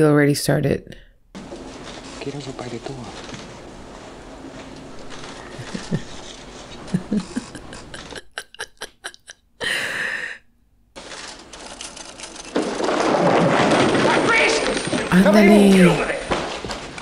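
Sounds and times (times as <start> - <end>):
woman laughing: 5.5 - 10.4.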